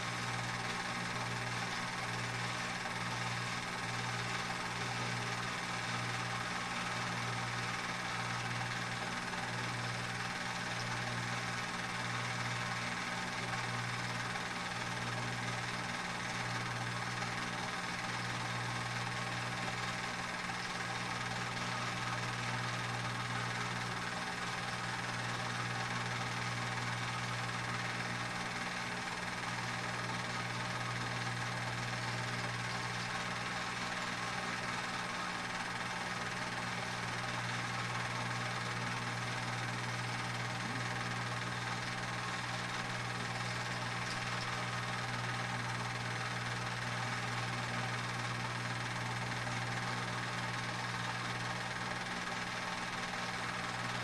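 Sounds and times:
film projector motor whirring: 0.0s - 54.0s.

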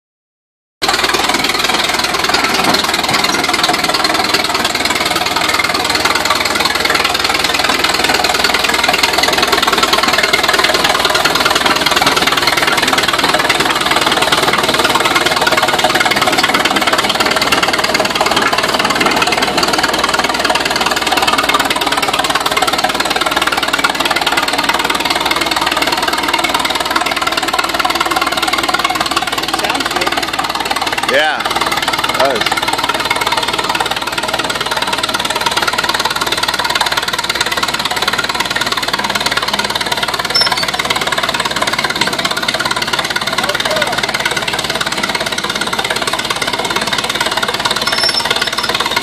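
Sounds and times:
tractor engine running: 0.8s - 49.0s
steel tracks clanking: 38.9s - 49.0s.

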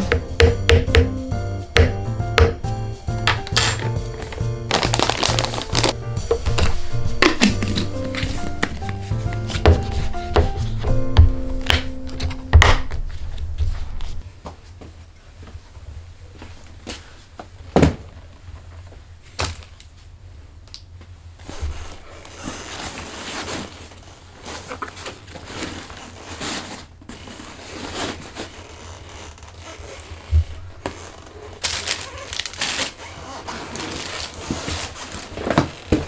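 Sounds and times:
backpack rustling and handling: 3.6s - 10.8s, 21.4s - 36.0s.

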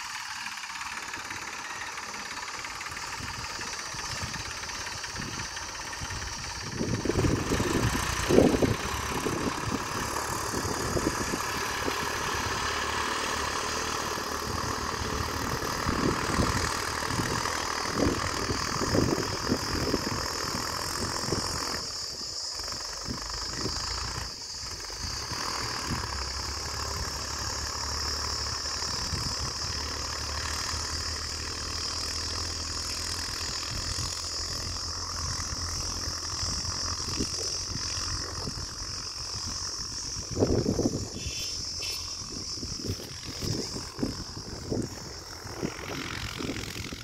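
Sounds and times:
distant tractor diesel engine: 0.0s - 47.0s
high-pitched buzz: 33.3s - 47.0s.

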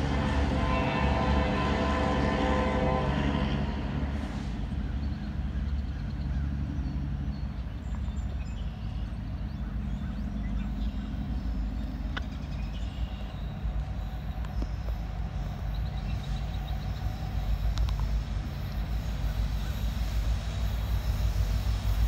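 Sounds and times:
locomotive horn blast: 0.0s - 4.7s
diesel engine low rumble: 0.0s - 22.0s.

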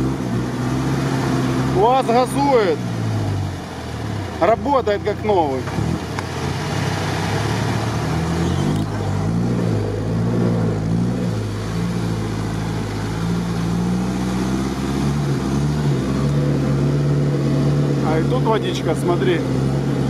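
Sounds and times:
off-road vehicle engine revving: 0.0s - 20.0s.

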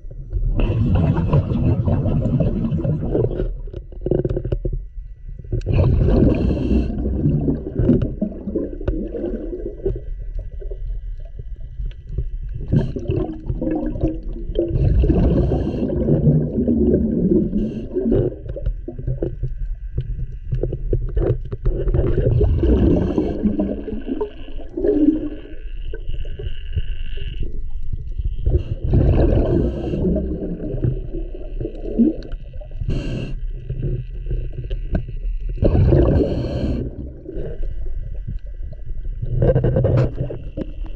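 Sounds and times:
bubbly underwater exhalations: 0.4s - 4.7s, 5.5s - 11.1s, 12.6s - 19.4s, 20.7s - 26.5s, 28.4s - 40.9s
hissing inhalations: 32.8s - 33.6s.

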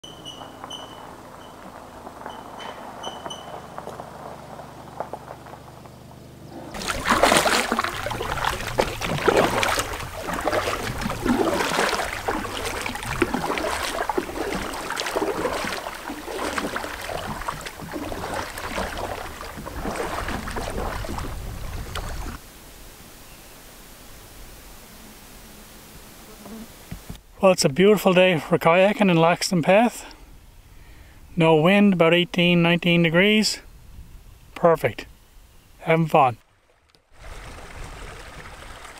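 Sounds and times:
paddle strokes splashing: 6.6s - 22.4s, 36.4s - 38.9s
water lapping against hull: 6.6s - 22.4s, 36.4s - 38.9s
faint steady hiss: 21.4s - 38.9s.

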